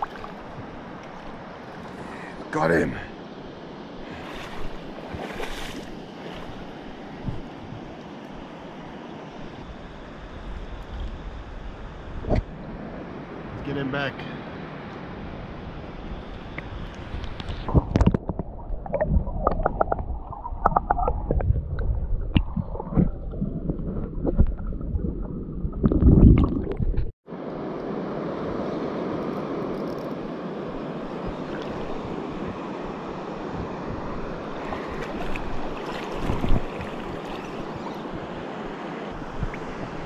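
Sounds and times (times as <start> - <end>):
wind on microphone: 4.0 - 8.5, 15.1 - 27.2, 31.0 - 40.0
underwater gurgling: 17.6 - 27.1
underwater knocks and thumps: 17.7 - 27.1.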